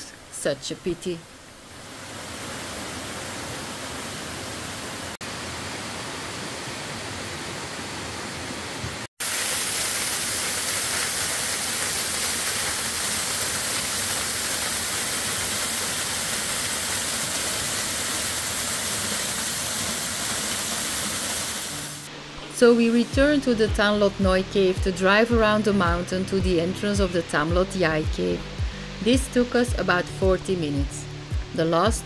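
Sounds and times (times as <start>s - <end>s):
waterfall pouring over rocks: 9.2s - 22.1s.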